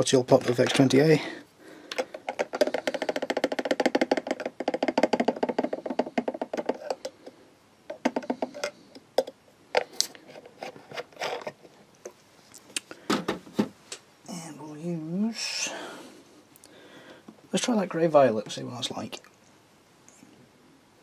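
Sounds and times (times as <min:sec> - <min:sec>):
paintbrush rattling in pot: 0:02.0 - 0:07.2.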